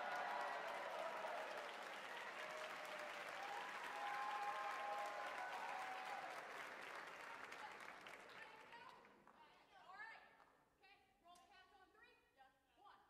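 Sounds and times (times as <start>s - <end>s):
drawn-out cheering shouts: 0.0s - 6.3s
audience applauding: 0.0s - 8.6s.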